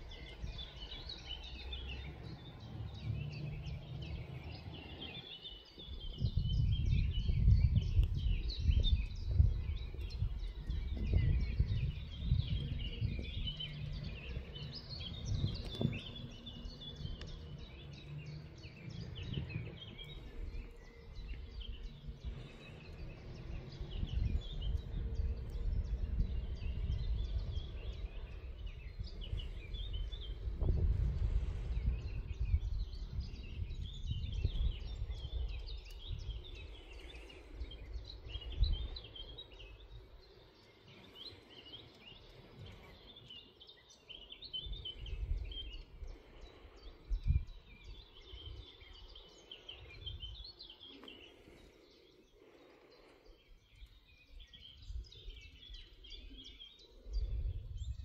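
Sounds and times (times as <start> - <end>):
birds chirping and singing: 0.0 - 58.0
low rumble: 5.8 - 39.5.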